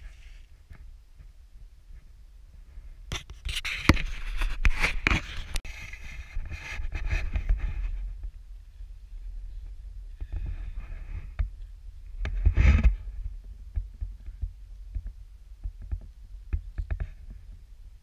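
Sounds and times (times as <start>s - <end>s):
wind rumble on microphone: 0.0s - 18.0s
camera handling scrapes and knocks: 3.1s - 8.0s.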